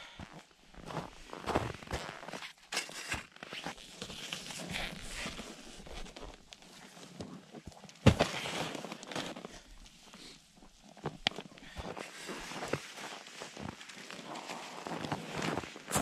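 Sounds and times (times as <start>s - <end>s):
footsteps crunching on snow: 0.2s - 6.3s, 11.8s - 16.0s.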